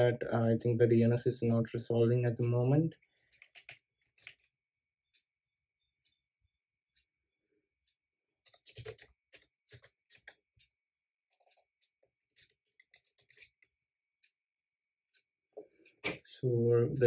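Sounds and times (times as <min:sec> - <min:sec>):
computer keyboard typing: 0:03.2 - 0:04.5, 0:08.4 - 0:10.5.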